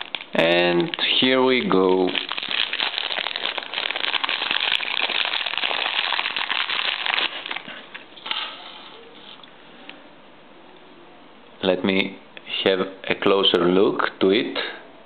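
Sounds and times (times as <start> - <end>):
bubble wrap crinkling and crackling: 0.0 - 9.4.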